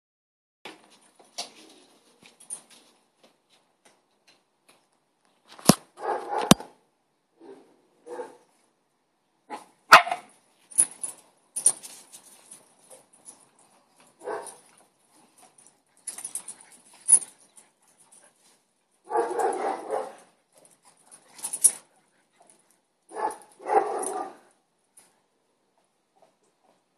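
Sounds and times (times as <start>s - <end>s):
dogs barking: 6.0s - 6.6s, 8.1s - 8.4s, 9.5s - 10.3s, 14.2s - 14.6s, 19.1s - 20.3s, 23.1s - 24.5s.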